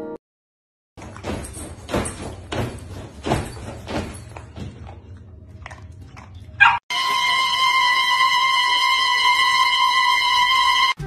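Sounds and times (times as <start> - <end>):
dog eating from bowl: 4.3 - 6.8.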